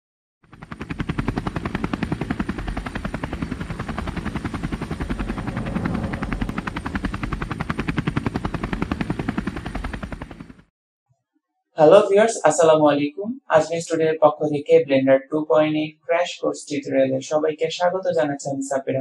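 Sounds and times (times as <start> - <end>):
spinning propeller chopping: 0.5 - 10.7.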